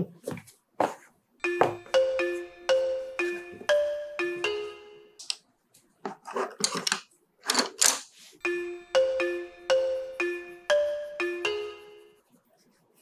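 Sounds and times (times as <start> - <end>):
chime-like melody: 1.4 - 5.2, 8.4 - 12.2.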